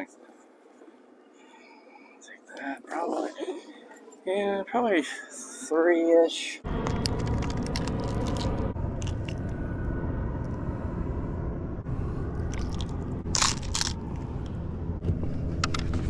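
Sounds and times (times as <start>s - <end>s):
rumbling haze: 6.6s - 16.0s.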